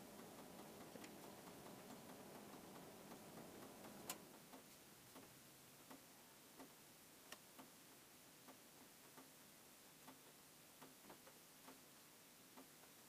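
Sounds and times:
faint regular ticks: 0:00.1 - 0:07.8, 0:08.4 - 0:09.4, 0:10.0 - 0:11.9.

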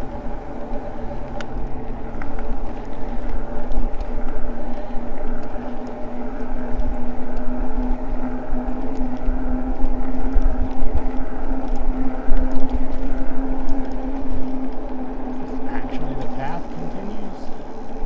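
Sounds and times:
e-bike motor and tyres humming: 0:00.0 - 0:18.0.

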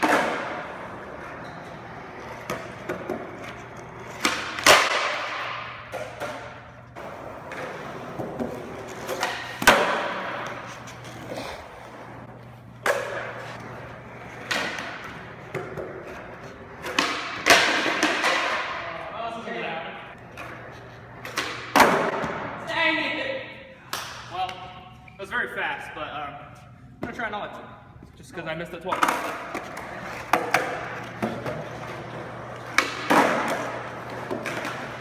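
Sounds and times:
skateboard clacks: 0:00.0 - 0:01.2, 0:02.2 - 0:11.4, 0:12.8 - 0:18.8, 0:28.9 - 0:35.0
skateboards rolling on concrete: 0:00.0 - 0:18.8, 0:20.1 - 0:22.4, 0:28.9 - 0:35.0.

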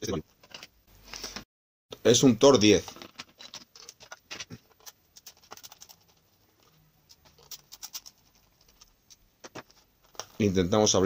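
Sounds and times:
plastic case handled: 0:02.6 - 0:07.6, 0:08.6 - 0:10.5.

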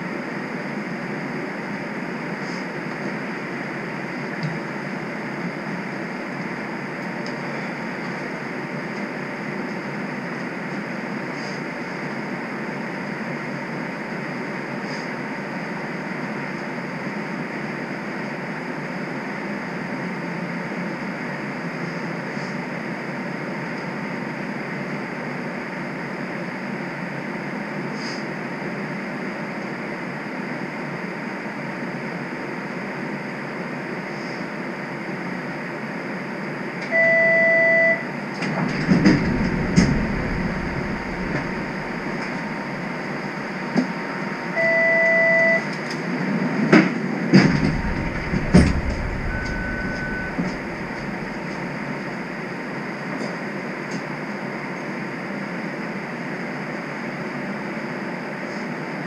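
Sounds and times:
streetcar hum and hiss: 0:00.0 - 0:36.9, 0:38.0 - 0:59.0
faint high whine: 0:36.8 - 0:43.6, 0:47.5 - 0:52.6
loud electronic beep: 0:36.9 - 0:38.0, 0:38.8 - 0:42.6, 0:47.7 - 0:51.7
streetcar clunking and rattling: 0:38.3 - 0:42.9, 0:46.6 - 0:52.2.

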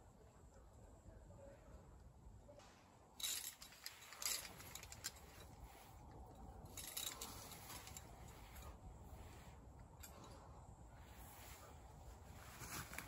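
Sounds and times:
metal climbing gear clinking: 0:03.2 - 0:10.6.

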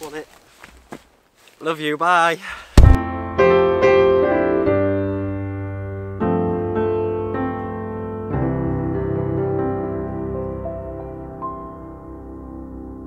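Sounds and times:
slow piano chords: 0:02.9 - 0:13.0.

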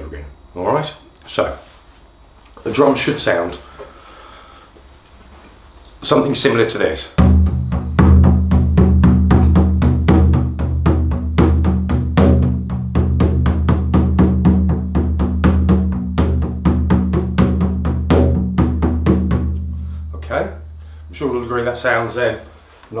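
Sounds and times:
frame drum beating: 0:07.2 - 0:21.9.

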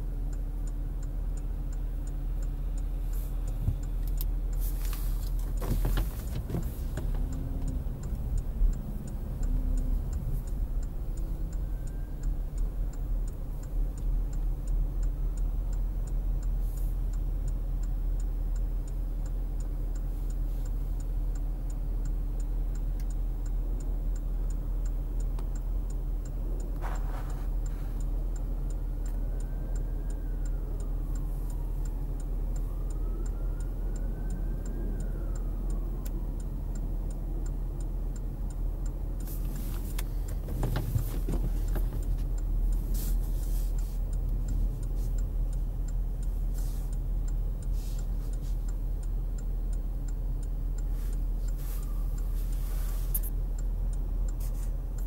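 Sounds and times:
engine and fan hum: 0:00.0 - 0:55.0
fast even ticking: 0:06.2 - 0:26.8.

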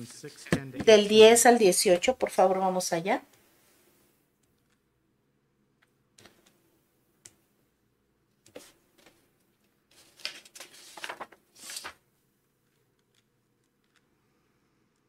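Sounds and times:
book pages turning: 0:08.5 - 0:09.2, 0:09.9 - 0:12.0.

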